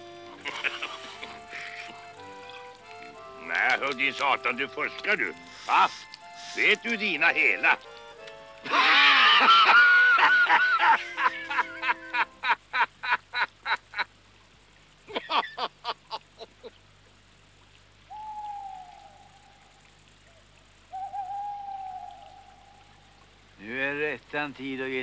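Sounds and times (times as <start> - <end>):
man laughing heartily: 0.3 - 2.0, 8.6 - 14.1, 15.1 - 16.8
owl hooting: 18.1 - 23.4.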